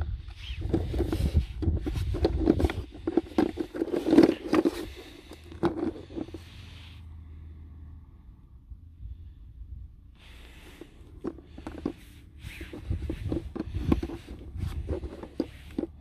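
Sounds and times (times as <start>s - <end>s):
eggs scraping a bucket: 0.0s - 6.7s, 10.3s - 16.0s.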